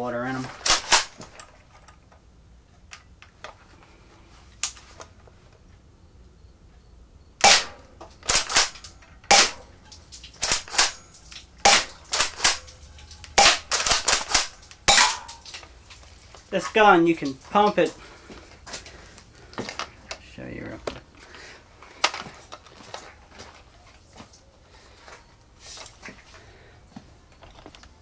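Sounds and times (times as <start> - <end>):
pellets punching into cans: 0.4 - 1.5, 7.4 - 15.6
airsoft shotgun snaps: 7.4 - 9.7.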